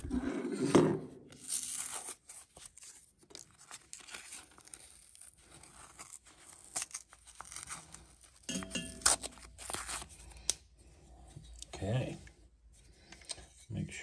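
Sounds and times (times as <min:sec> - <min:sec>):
paper rustling and tearing: 0:01.3 - 0:10.4.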